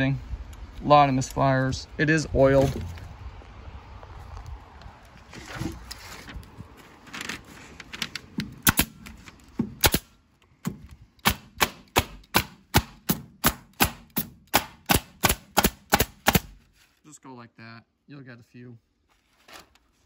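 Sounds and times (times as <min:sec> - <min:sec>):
pneumatic stapler firing: 0:09.8 - 0:10.1.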